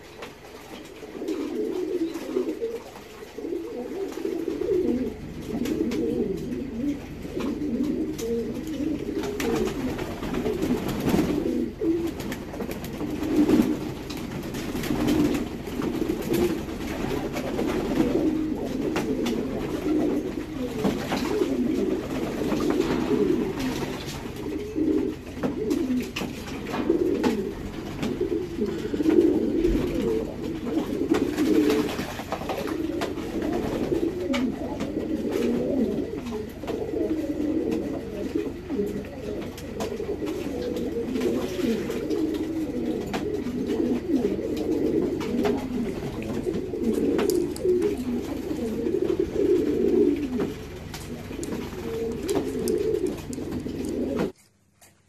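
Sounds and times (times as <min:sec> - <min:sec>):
pigeons cooing: 0:00.0 - 0:54.4.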